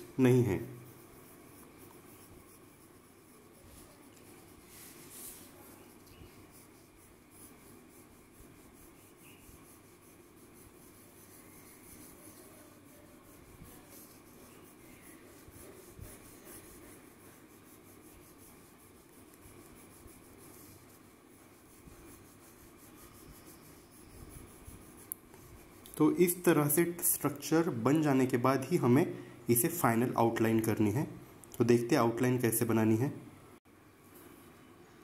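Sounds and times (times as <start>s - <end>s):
pencil scratching on paper: 0.0s - 31.2s.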